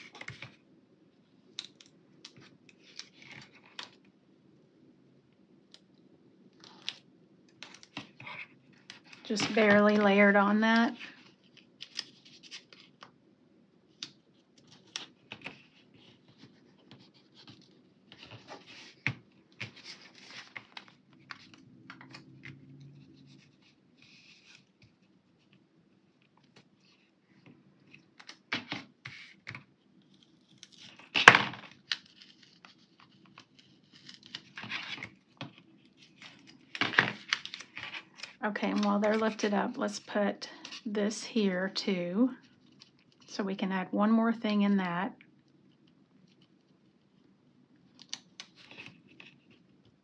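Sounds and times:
paper stickers rustling: 27.9 - 40.9.

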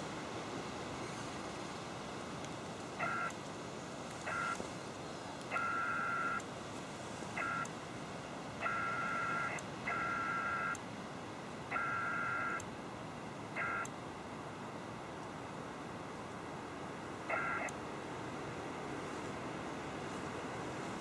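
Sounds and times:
receiver hiss: 0.0 - 21.0
multi-tone data signal warbling: 3.0 - 3.4, 4.3 - 4.6, 5.5 - 6.4, 7.4 - 7.7, 8.6 - 10.8, 11.7 - 12.6, 13.6 - 13.9, 17.3 - 17.7.

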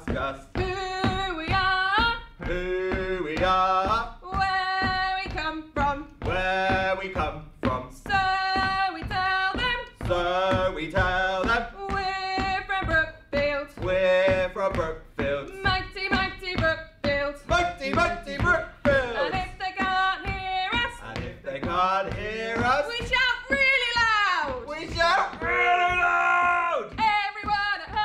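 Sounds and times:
man singing: 0.0 - 1.8, 2.4 - 4.6, 5.7 - 8.4, 9.9 - 12.1, 13.6 - 16.2, 17.3 - 19.7, 20.9 - 23.1
woman singing: 0.0 - 7.2, 7.9 - 21.2, 22.4 - 24.7, 26.9 - 28.0.

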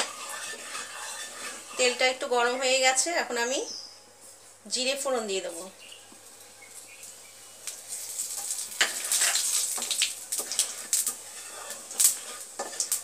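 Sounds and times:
wooden spatula stirring: 0.0 - 2.7, 7.9 - 13.0
seeds sizzling in hot oil: 0.0 - 3.6, 4.7 - 13.0.

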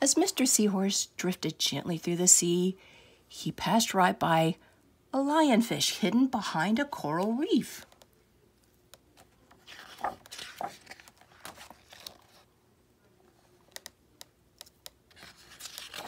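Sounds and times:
fingers tapping pages: 9.2 - 12.4, 13.6 - 16.0
plastic page rustling: 9.2 - 12.5, 15.1 - 16.0.

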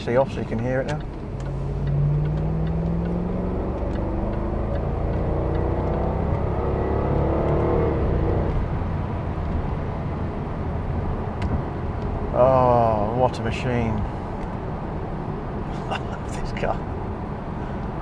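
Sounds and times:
car engine accelerating: 0.0 - 11.8.

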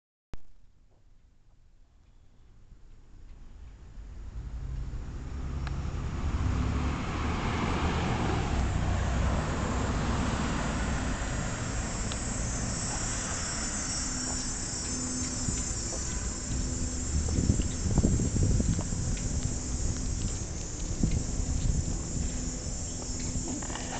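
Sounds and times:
low rumble: 3.4 - 7.4, 8.6 - 23.9
insects chirping: 8.5 - 23.9.

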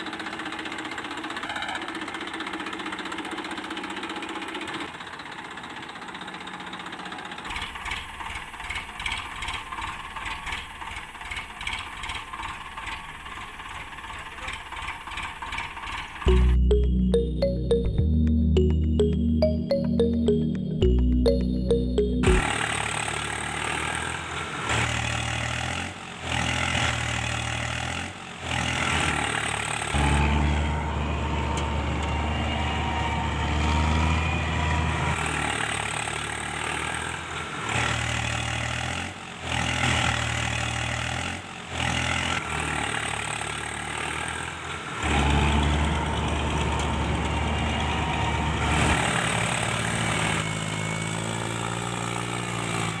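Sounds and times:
tractor engine under load: 0.0 - 16.2, 35.2 - 53.0.

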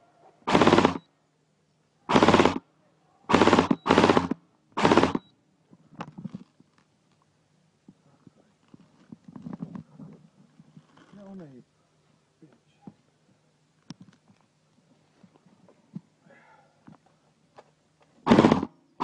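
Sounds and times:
airsoft rifle full-auto bursts: 0.5 - 1.1, 2.1 - 2.6, 3.3 - 5.3, 18.2 - 18.7
faint clicks and rustling: 5.6 - 16.2.

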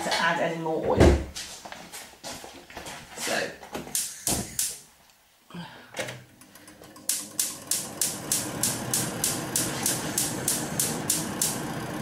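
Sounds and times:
gas hissing: 3.9 - 4.8, 6.6 - 12.0
spark igniter clicking: 3.9 - 4.8, 7.0 - 12.0.

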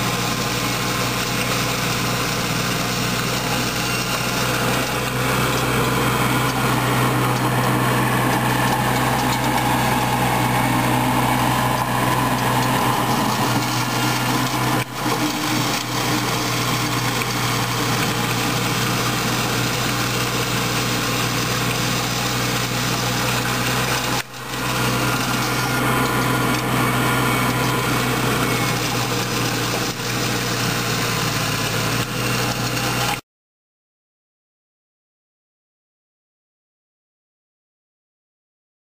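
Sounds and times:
tractor engine running: 0.0 - 33.2.

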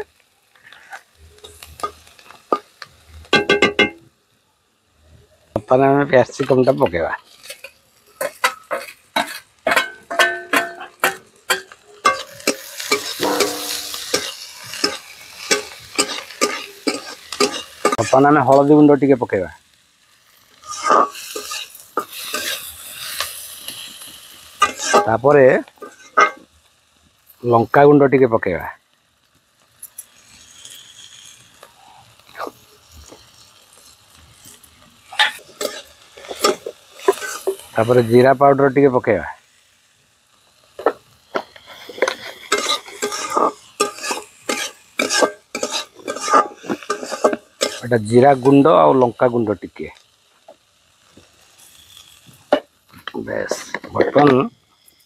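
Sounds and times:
vegetables sizzling in oil: 0.0 - 55.0
metal spatula scraping pan: 6.4 - 18.7, 20.6 - 25.2, 25.8 - 26.4, 34.4 - 38.0, 41.4 - 48.5
pan ringing: 13.1 - 14.3.

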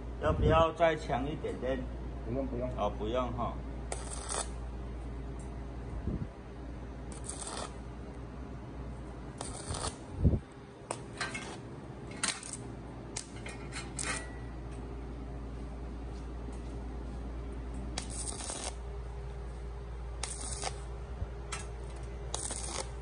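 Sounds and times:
welding arc crackling: 3.9 - 4.6, 7.0 - 8.0, 9.2 - 13.4, 17.9 - 23.0.

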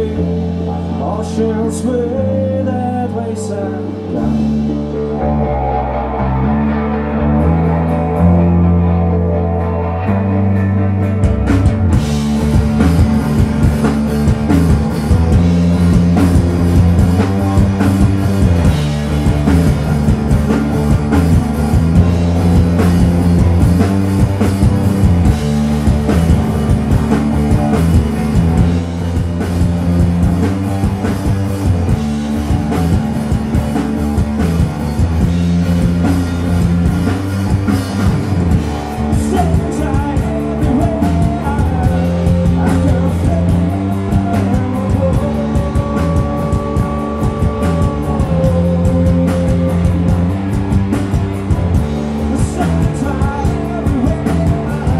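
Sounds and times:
bass guitar: 0.0 - 54.9
electric guitar: 0.0 - 54.9
drum kit with cymbals: 11.2 - 54.9.

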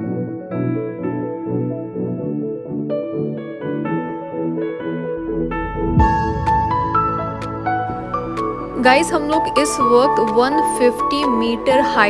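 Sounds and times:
piano melody: 0.0 - 12.0
sustained accompaniment: 5.2 - 9.0.

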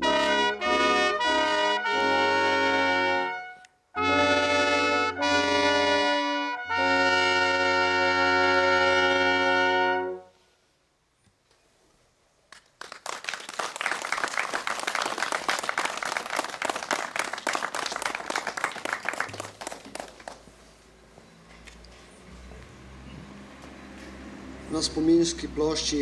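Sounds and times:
brass band chord: 0.0 - 10.4
crowd applauding: 12.5 - 20.5.

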